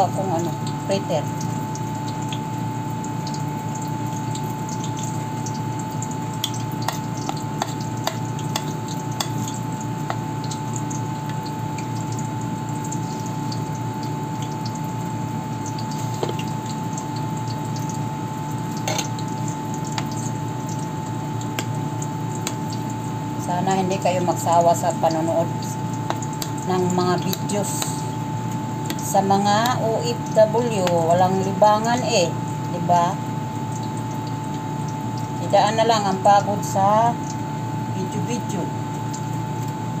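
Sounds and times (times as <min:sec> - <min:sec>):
oil sizzling in frying pan: 0:00.0 - 0:35.4
steady hum: 0:00.0 - 0:40.0
spoon clicking on bowl and pan: 0:06.4 - 0:10.2.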